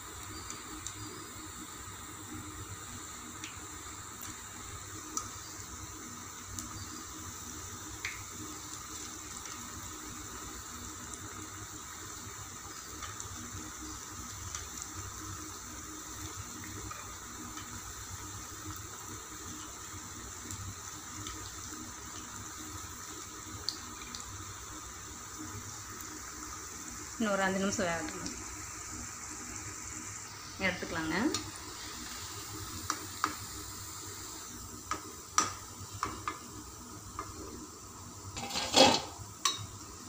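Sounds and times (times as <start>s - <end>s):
food deep-frying in hot oil: 0.0s - 40.0s.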